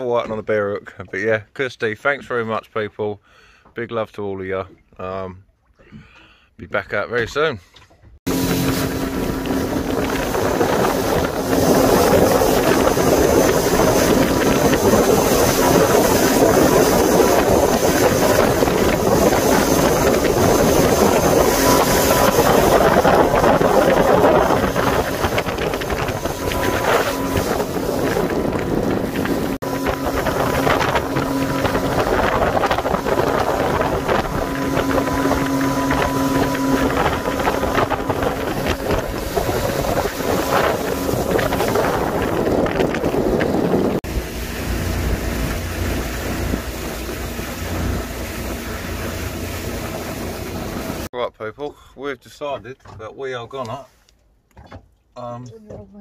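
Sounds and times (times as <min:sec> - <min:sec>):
wind buffeting microphone: 0:08.2 - 0:51.1
motorboat engine drone: 0:08.3 - 0:51.1
water rushing: 0:08.3 - 0:51.1.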